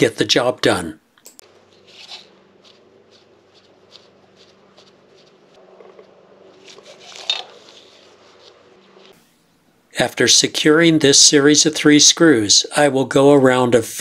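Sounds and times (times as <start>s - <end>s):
rubber glove rustling: 1.4s - 9.2s.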